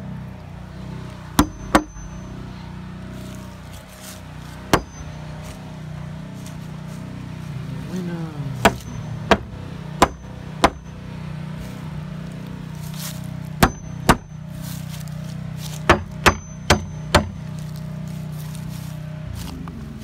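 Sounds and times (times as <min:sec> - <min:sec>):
steady low hum: 0:00.0 - 0:20.0
hammer striking nails into wood: 0:01.4 - 0:02.1, 0:04.7 - 0:05.1, 0:08.6 - 0:10.9, 0:13.6 - 0:14.4, 0:15.8 - 0:17.4.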